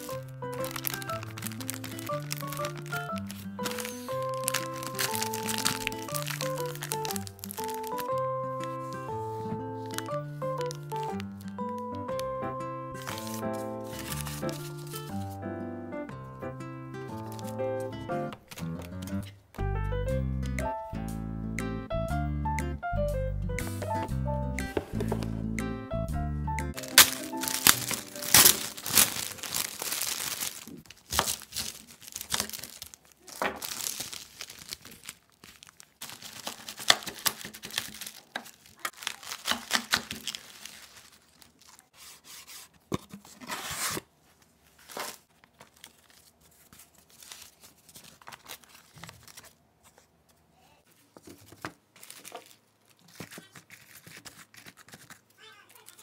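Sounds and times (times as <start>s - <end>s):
food packaging crinkling and tearing: 0.0s - 12.3s, 12.9s - 15.4s, 17.1s - 17.6s, 26.8s - 42.6s, 43.2s - 49.6s, 51.4s - 56.0s.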